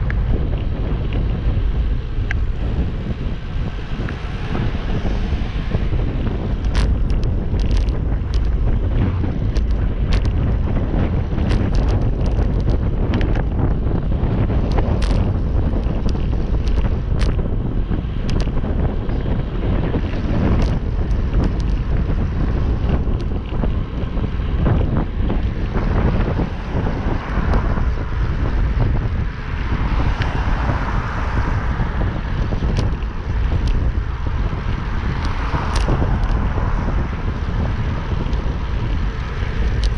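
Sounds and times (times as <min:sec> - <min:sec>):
tyre and road noise: 0:00.0 - 0:39.9
wind rushing over microphone: 0:00.0 - 0:39.9
sharp ticks: 0:37.5 - 0:39.9.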